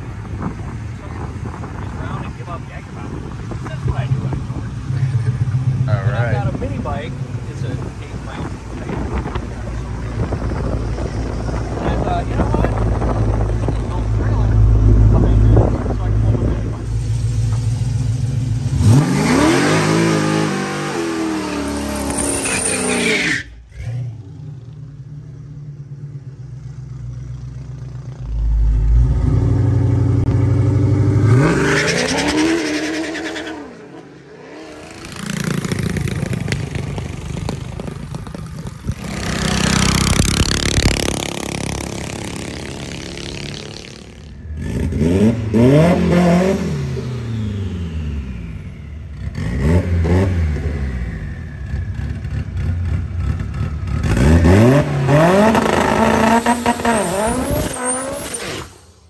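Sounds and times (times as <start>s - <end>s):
car engine revving: 3.6s - 25.1s, 27.2s - 58.8s.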